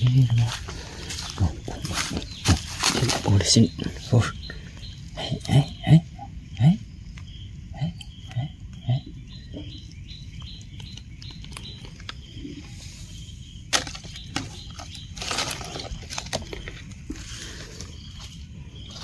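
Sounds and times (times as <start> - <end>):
dry leaves rustling: 0.0 - 4.1, 13.7 - 19.0.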